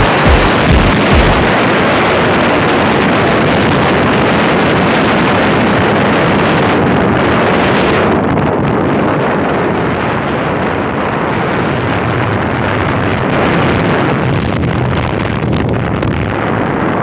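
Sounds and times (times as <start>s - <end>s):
music beat: 0.0s - 1.5s
wind buffeting microphone: 1.5s - 17.0s.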